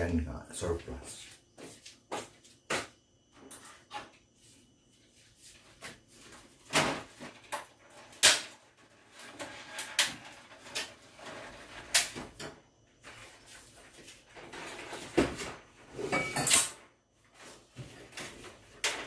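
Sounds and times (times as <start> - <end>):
kitchen items knocking and clattering: 6.6 - 13.4, 14.2 - 16.9.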